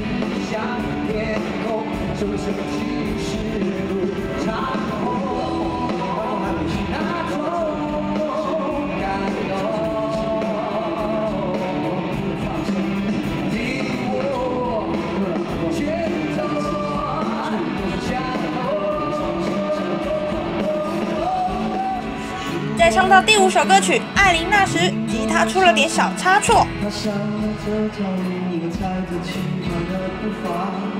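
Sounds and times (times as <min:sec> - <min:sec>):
acoustic and electric guitars: 0:00.0 - 0:30.9
male voices singing: 0:13.5 - 0:27.9.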